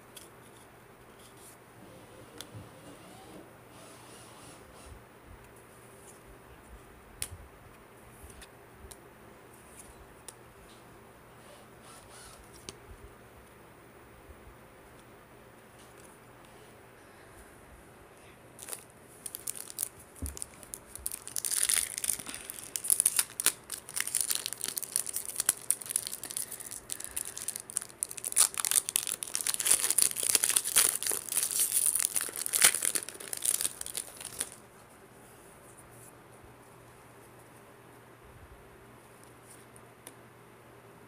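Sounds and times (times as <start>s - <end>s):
wrapper crinkling and tearing: 18.6s - 34.6s.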